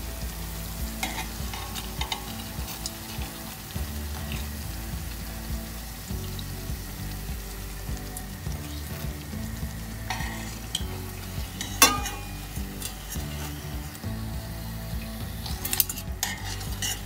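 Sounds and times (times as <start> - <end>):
food sizzling in oil: 0.0 - 17.0
spoons scraping and clinking on pan: 1.0 - 3.6, 10.0 - 14.0, 15.4 - 17.0.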